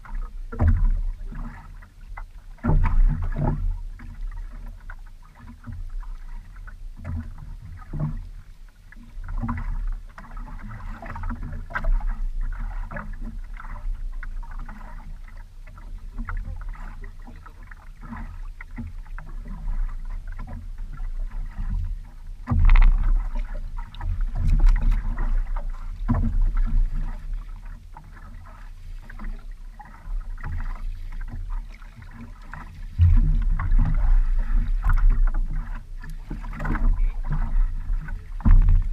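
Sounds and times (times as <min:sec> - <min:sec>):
water lapping against boat hull: 0:00.0 - 0:38.9
knocks and thumps: 0:22.4 - 0:23.3.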